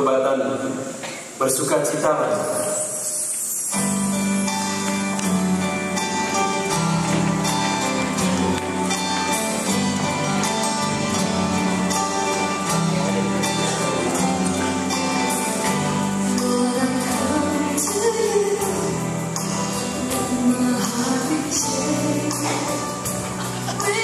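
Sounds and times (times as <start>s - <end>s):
worship song with singing: 16.3s - 24.0s.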